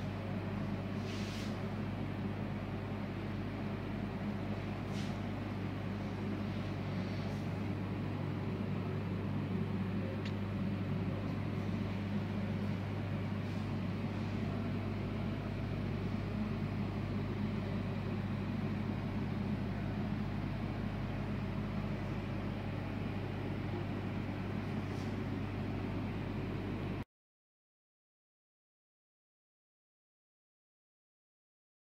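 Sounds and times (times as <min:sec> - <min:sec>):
steady low hum: 0:00.0 - 0:27.0
faint click: 0:10.2 - 0:10.4.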